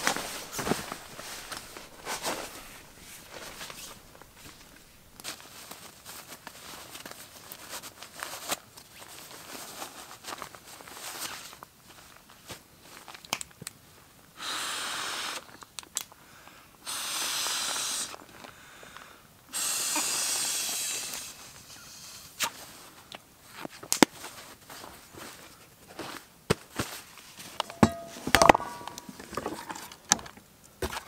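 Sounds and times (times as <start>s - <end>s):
fabric rustling: 0.0s - 7.8s
breath blown into pillow valve: 19.5s - 21.4s.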